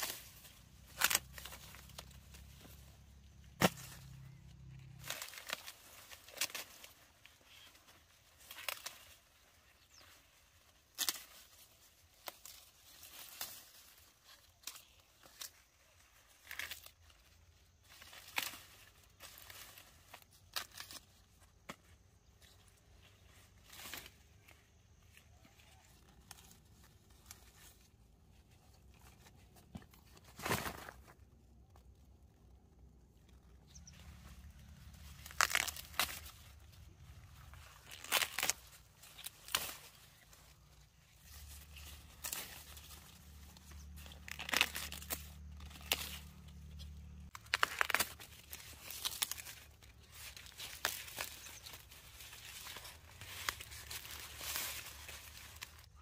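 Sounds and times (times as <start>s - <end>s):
corn ears snapping off stalks: 0.0s - 7.8s, 8.4s - 9.9s, 10.8s - 17.1s, 17.9s - 22.8s, 33.9s - 40.4s, 41.2s - 55.8s
dry leaves rustling: 0.0s - 31.4s, 33.2s - 56.0s.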